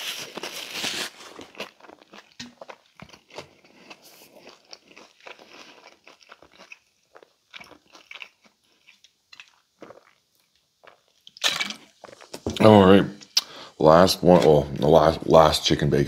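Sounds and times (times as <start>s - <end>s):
crunchy chewing: 0.0s - 12.4s.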